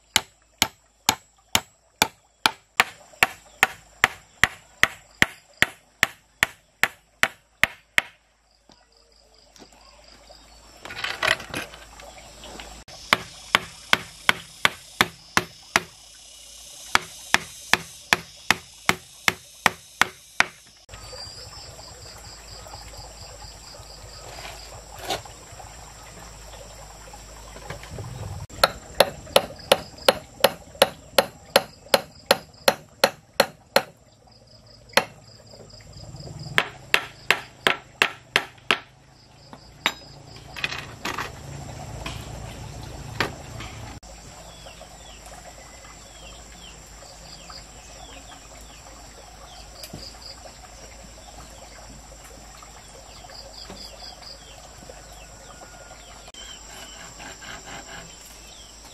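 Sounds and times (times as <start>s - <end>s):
faint insect drone: 0.0s - 58.9s
hand tool striking wood: 0.1s - 8.2s, 13.1s - 16.0s, 16.9s - 20.7s, 28.6s - 34.0s, 35.0s - 35.2s, 36.6s - 38.9s.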